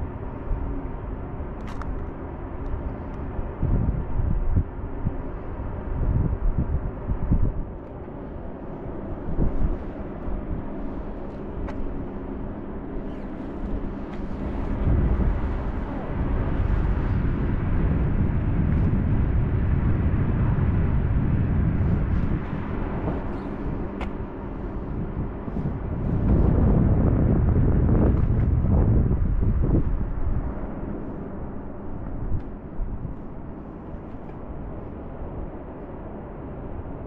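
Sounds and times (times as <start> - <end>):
faint steady hum: 0.0 - 37.0
wind buffeting microphone: 0.0 - 37.0.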